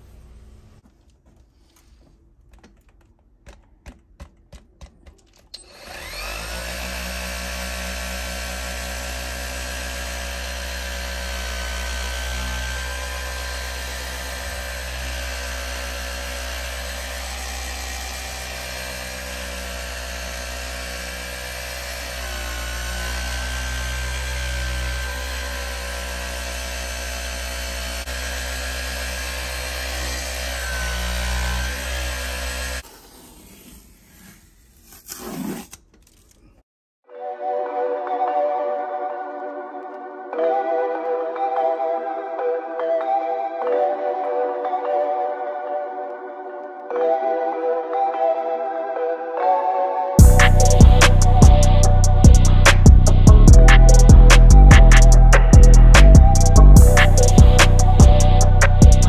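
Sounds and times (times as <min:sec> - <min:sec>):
motor humming: 0:05.6 - 0:34.2, 0:50.2 - 0:59.0.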